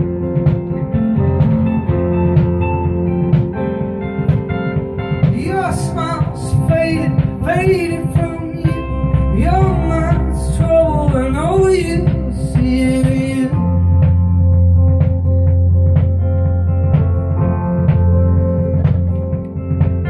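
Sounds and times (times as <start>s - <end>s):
live band playing: 0.0s - 20.0s
person singing: 5.0s - 14.4s.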